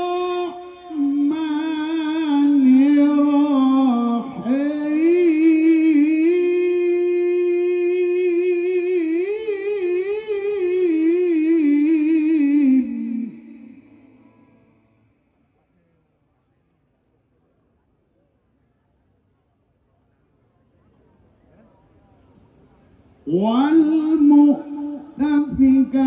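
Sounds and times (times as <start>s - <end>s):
man reciting melodically: 0.0s - 14.8s, 23.2s - 26.0s.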